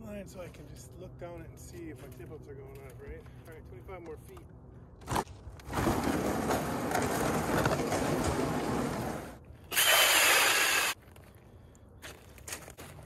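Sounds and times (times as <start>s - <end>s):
ice auger grinding through ice: 8.4s - 11.0s
drill motor whine: 9.7s - 11.0s.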